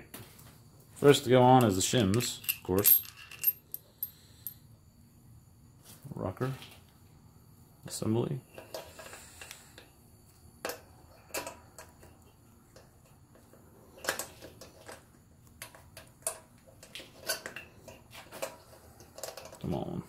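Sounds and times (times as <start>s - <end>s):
metallic clinks and knocks: 1.5s - 4.6s.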